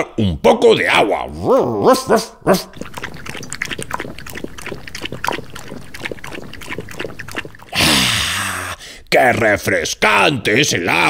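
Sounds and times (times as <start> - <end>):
person gulping water: 1.6 - 9.1.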